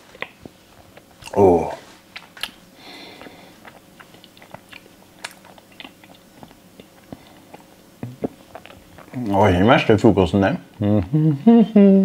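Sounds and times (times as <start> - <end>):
person chewing cake: 0.0 - 10.1
mouth clicks: 3.2 - 9.2.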